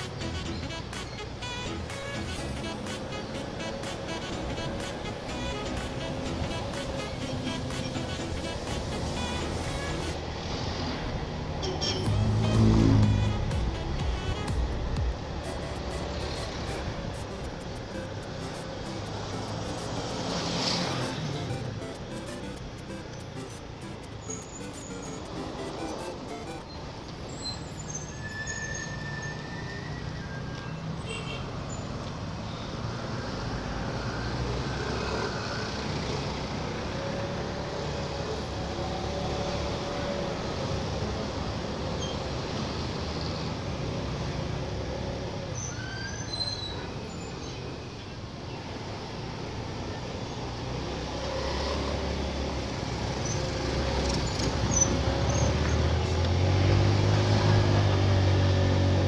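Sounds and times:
bus: 0:00.0 - 0:59.0
wind and road noise: 0:00.0 - 0:59.0
other motorbikes: 0:48.6 - 0:59.0.

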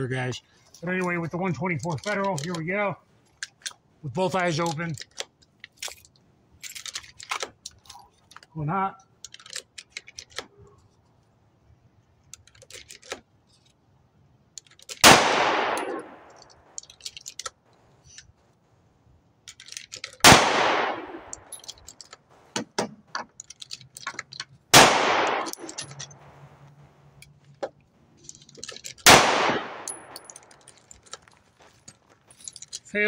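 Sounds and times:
small clicks and clinks: 0:00.6 - 0:11.3, 0:12.2 - 0:13.8, 0:14.5 - 0:15.0, 0:15.7 - 0:18.5, 0:19.4 - 0:20.2, 0:21.2 - 0:24.6, 0:25.2 - 0:29.1, 0:29.7 - 0:33.0
pistol shots with echo: 0:15.0 - 0:16.3, 0:20.2 - 0:21.4, 0:24.7 - 0:25.8, 0:29.1 - 0:30.2.

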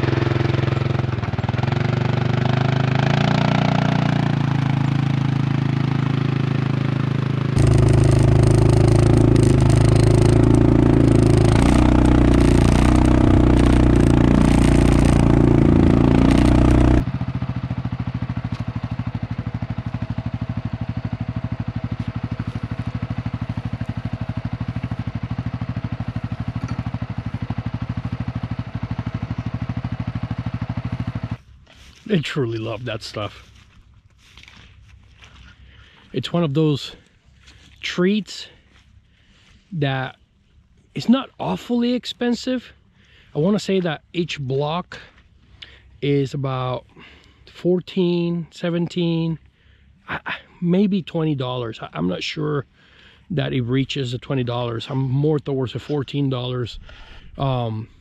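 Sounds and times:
atv engine running: 0:00.0 - 0:36.1, 0:45.0 - 0:48.2
feeder dragging clatter: 0:07.6 - 0:17.0.

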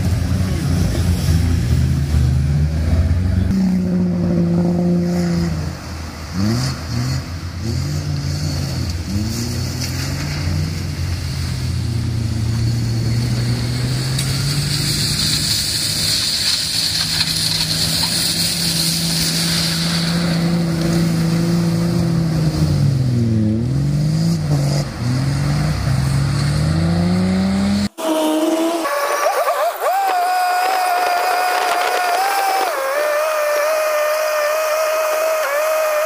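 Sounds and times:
vehicle engine running hard: 0:00.0 - 0:28.0
water spray hissing: 0:13.8 - 0:21.2.

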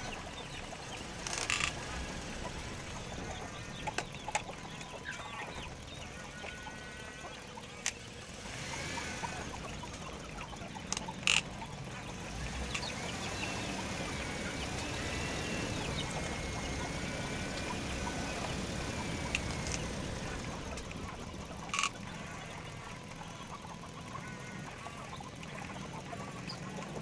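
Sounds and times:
small electric motors whining: 0:00.0 - 0:27.0
sharp clicks: 0:00.8 - 0:05.6, 0:07.7 - 0:08.0, 0:09.6 - 0:11.6, 0:12.6 - 0:13.0, 0:18.4 - 0:22.4.

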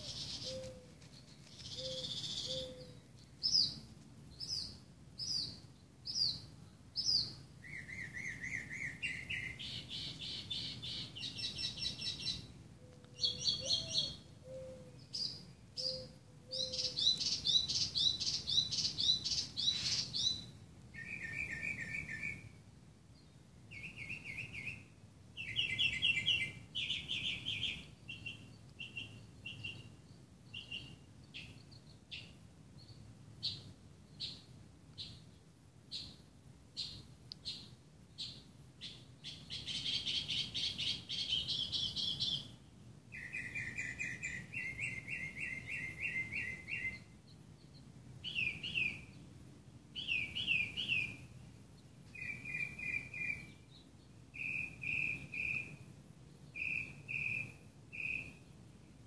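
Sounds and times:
mockingbird singing varied phrases: 0:00.0 - 0:00.8, 0:01.6 - 0:22.4, 0:36.8 - 0:47.2, 0:48.2 - 0:49.2, 0:50.0 - 0:51.3, 0:52.2 - 0:55.8.

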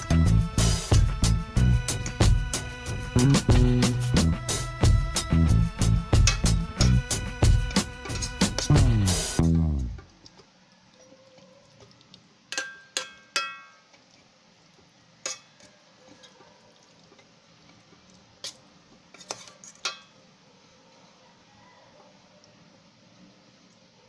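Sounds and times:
spoon stirring stew: 0:11.2 - 0:20.2
spoon clinking metal pot: 0:12.5 - 0:13.9, 0:15.2 - 0:15.6, 0:19.2 - 0:20.1.

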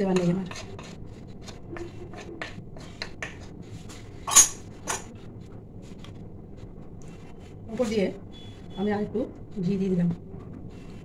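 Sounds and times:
wooden spatula scraping a pan: 0:00.0 - 0:04.1
metallic clatter of utensils: 0:04.3 - 0:05.1.

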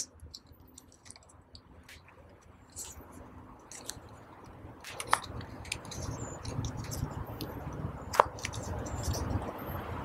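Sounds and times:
cardstock rustling and tapping: 0:00.0 - 0:09.6.

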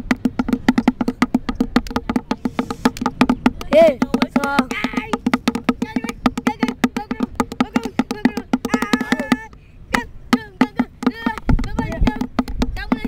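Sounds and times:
stick drumming on plastic bucket: 0:00.0 - 0:13.0.

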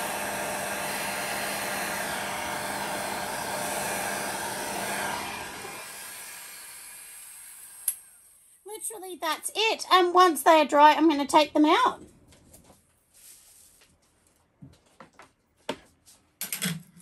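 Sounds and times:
heat gun blowing: 0:00.0 - 0:08.6.

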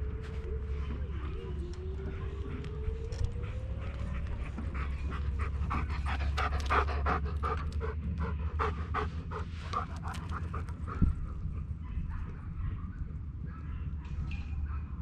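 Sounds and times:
dog panting: 0:02.0 - 0:11.8.

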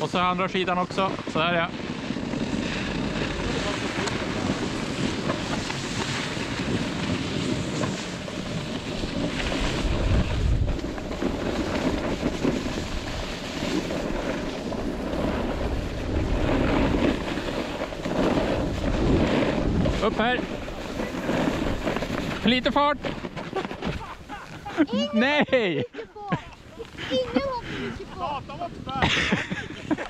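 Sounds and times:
skis sliding on snow: 0:00.0 - 0:30.0
wind buffeting microphone: 0:00.0 - 0:30.0.

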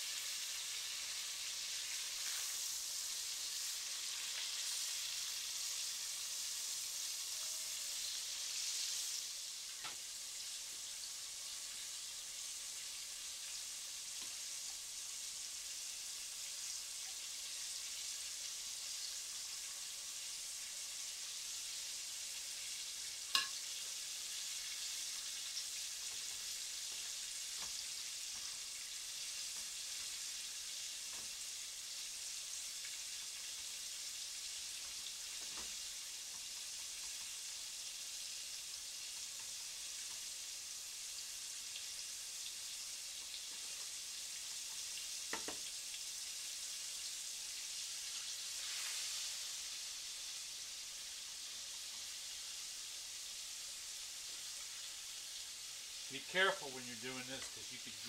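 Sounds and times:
food deep-frying in oil: 0:00.0 - 0:58.0.

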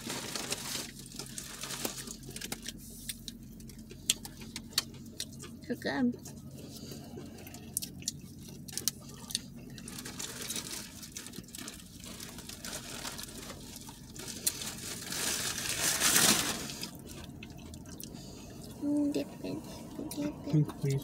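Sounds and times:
paper wrapper crinkling: 0:00.0 - 0:05.3, 0:08.6 - 0:17.3.

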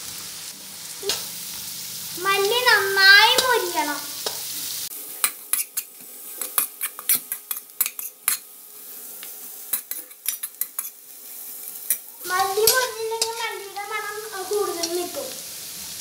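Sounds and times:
onions sizzling in oil: 0:00.0 - 0:16.0
metal spatula scraping a pan: 0:05.2 - 0:08.4, 0:09.7 - 0:13.7.

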